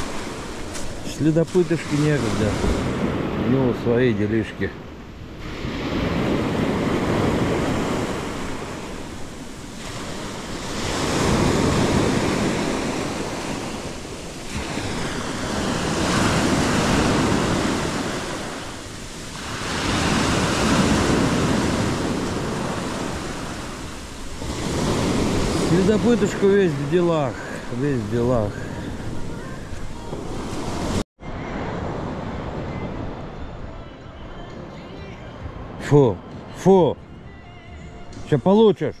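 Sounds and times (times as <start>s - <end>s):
sea waves breaking on shore: 0.0s - 33.7s.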